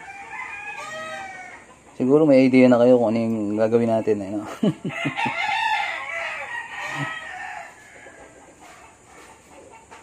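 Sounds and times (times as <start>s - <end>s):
rooster crowing: 0.0s - 1.7s, 4.8s - 8.9s.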